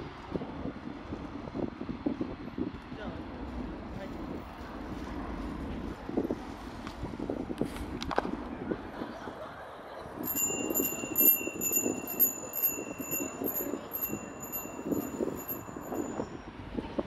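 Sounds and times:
small high-pitched bell ringing: 0:10.2 - 0:16.5.

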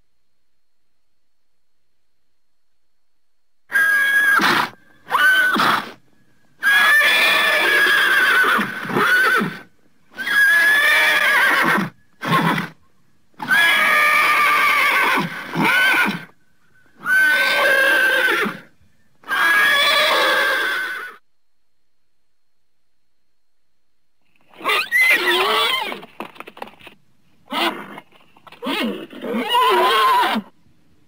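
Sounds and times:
horse whinnying: 0:03.7 - 0:06.0, 0:06.6 - 0:12.8, 0:13.4 - 0:16.4, 0:17.0 - 0:21.2, 0:24.5 - 0:26.3, 0:27.5 - 0:30.5.

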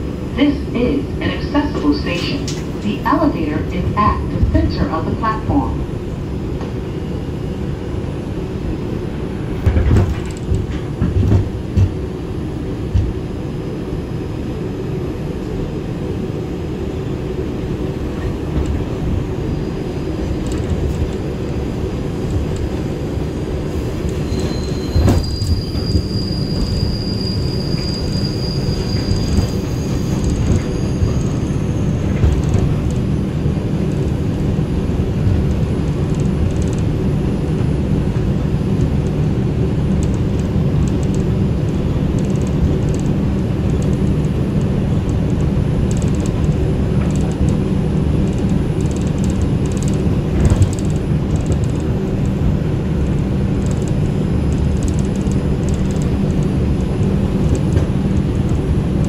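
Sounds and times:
train wheels rumbling on rail: 0:00.0 - 0:59.0
high wheel squeal: 0:24.2 - 0:32.1.

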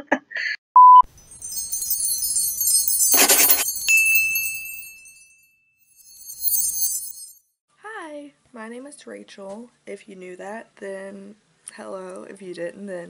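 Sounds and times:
high ringing ding: 0:01.0 - 0:07.4
shimmering chime-like sparkle: 0:01.0 - 0:07.5.

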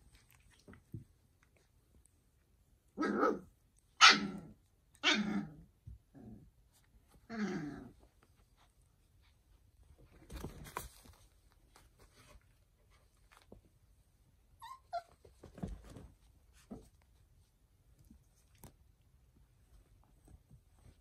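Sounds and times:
puppy squeal: 0:14.6 - 0:15.2
puppies yipping and whimpering: 0:14.6 - 0:15.3.

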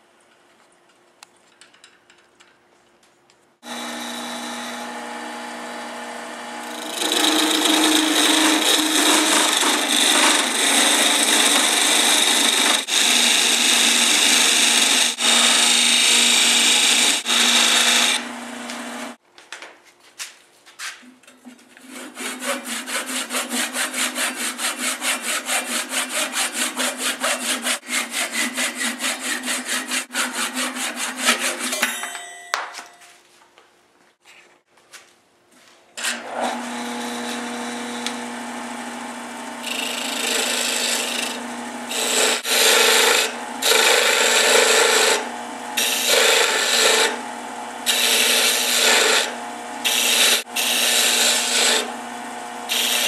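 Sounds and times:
lathe motor tone: 0:03.6 - 0:19.2
tool cutting spinning wood: 0:03.6 - 0:19.2, 0:21.7 - 0:31.8, 0:36.0 - 0:53.0.

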